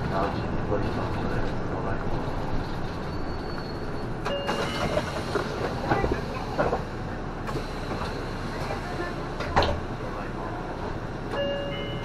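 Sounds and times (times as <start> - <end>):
bus engine and road noise: 0.0 - 12.0.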